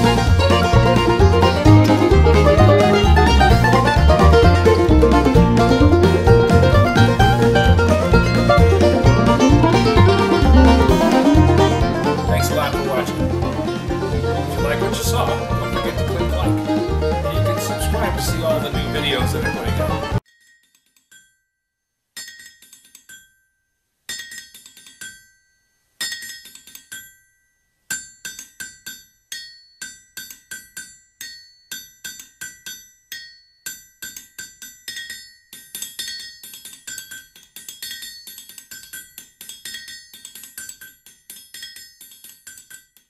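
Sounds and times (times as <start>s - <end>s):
struck metallic percussion: 0.0s - 21.4s.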